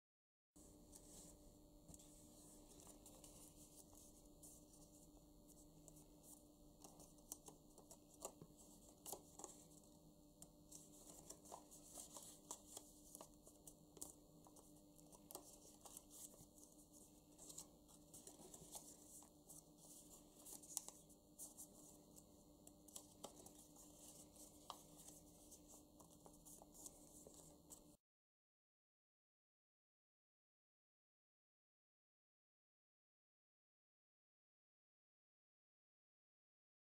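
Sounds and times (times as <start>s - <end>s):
paper rustling and crinkling: 0.9s - 10.0s, 10.6s - 28.0s.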